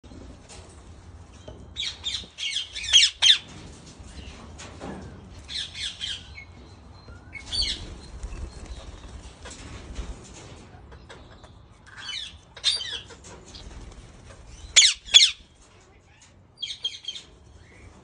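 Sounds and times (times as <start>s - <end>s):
parakeets squawking: 2.1s - 3.4s, 14.8s - 15.4s.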